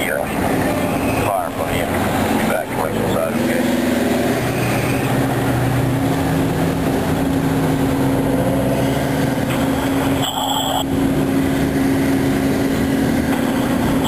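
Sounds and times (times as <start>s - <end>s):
two-way radio squelch: 0.0s - 3.6s, 10.0s - 10.9s
engine running steadily: 0.0s - 14.0s
roaring gas fire: 0.0s - 14.0s.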